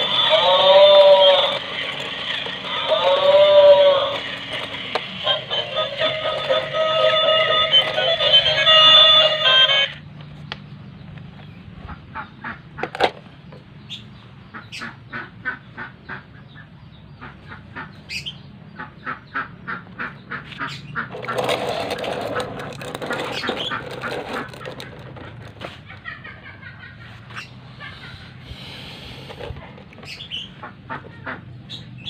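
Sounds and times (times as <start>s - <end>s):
plastic toys clicking: 0.0s - 9.1s, 21.1s - 25.7s
poultry calling: 0.0s - 9.9s.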